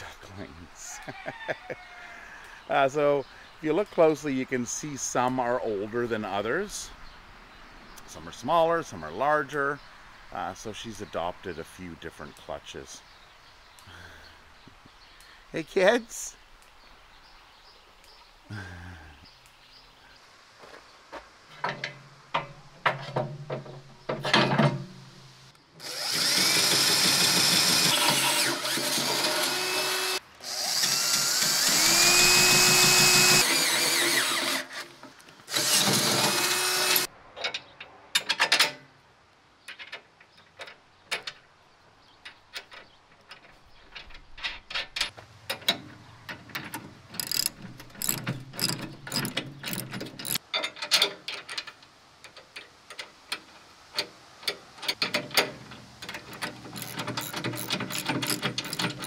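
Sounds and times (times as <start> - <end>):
power drill drilling into steel: 25.8 - 34.8, 35.5 - 37.1, 56.8 - 59.0
tool clicks: 46.5 - 51.7, 54.0 - 59.0
socket ratchet clicking: 47.1 - 50.4, 56.1 - 59.0.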